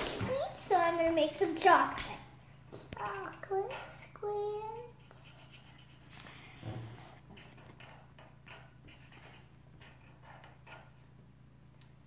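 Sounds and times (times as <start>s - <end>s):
marker scratching on paper: 3.2s - 11.1s.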